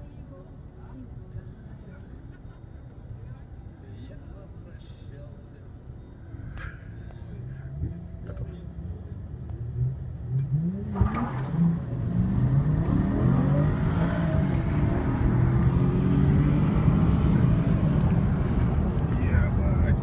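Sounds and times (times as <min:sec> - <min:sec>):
car engine accelerating hard: 0:09.6 - 0:20.0.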